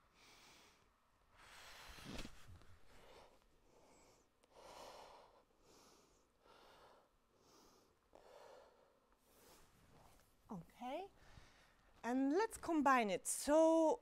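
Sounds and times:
woman breathing softly: 0.0 - 10.1, 11.2 - 11.9.

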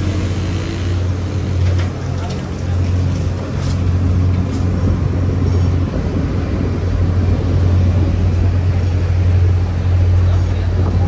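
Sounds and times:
bus engine low rumble: 0.0 - 11.0
road noise: 0.0 - 11.0
wind noise: 2.8 - 11.0.

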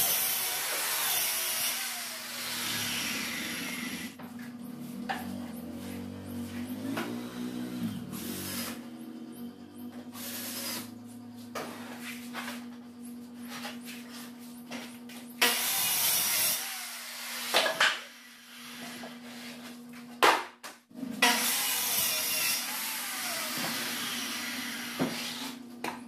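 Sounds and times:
circular saw cutting plywood: 0.0 - 11.1, 15.4 - 19.4, 21.2 - 25.6.

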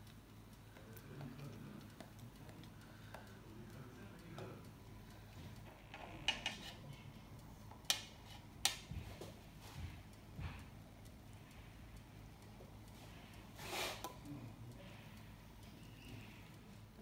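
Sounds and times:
knife scraping dough: 6.3 - 6.8, 8.0 - 8.5, 13.6 - 14.1.

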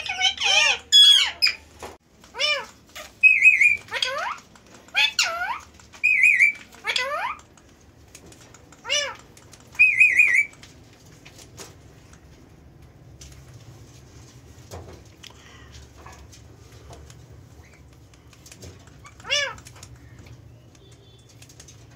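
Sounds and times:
parakeet squawks and trills: 0.0 - 1.7, 2.3 - 7.5, 8.8 - 10.6, 18.9 - 20.2.

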